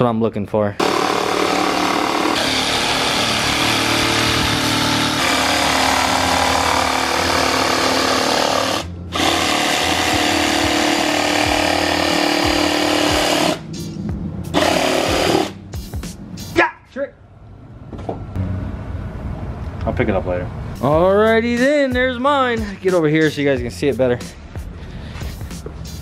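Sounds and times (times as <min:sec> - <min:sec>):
power saw cutting plastic bumper: 0:00.8 - 0:13.7, 0:14.6 - 0:15.6.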